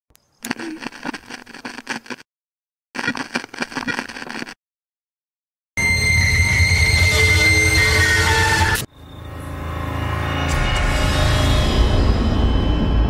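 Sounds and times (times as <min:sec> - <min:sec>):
crackling static: 0:00.4 - 0:02.3, 0:03.0 - 0:04.6
distorted drone with high whine: 0:05.8 - 0:13.0.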